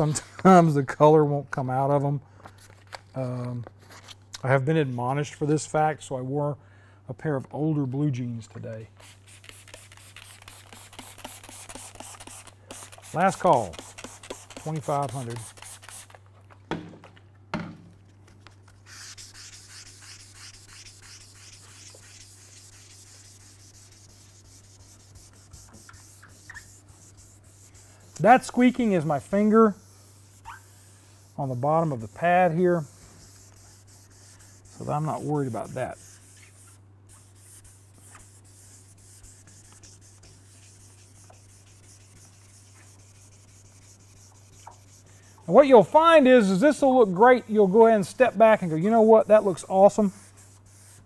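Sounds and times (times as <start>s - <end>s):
sandpaper rasping back and forth: 9.1s - 16.1s, 18.8s - 45.8s, 47.7s - 51.0s.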